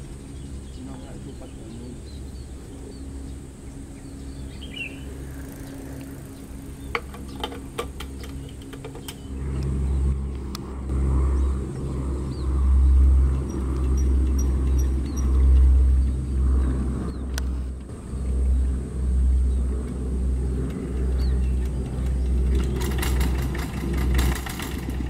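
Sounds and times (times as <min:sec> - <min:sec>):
heavy engine rumble: 0:00.0 - 0:25.0
diesel engine idling: 0:10.9 - 0:25.0
metallic clicks and clanks: 0:20.7 - 0:25.0.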